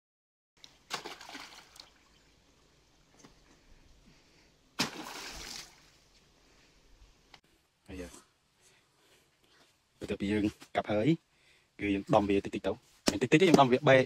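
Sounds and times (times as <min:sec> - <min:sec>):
water sloshing: 0:00.6 - 0:03.3, 0:04.8 - 0:06.0
splashes into water tank: 0:00.8 - 0:02.2, 0:04.8 - 0:06.0.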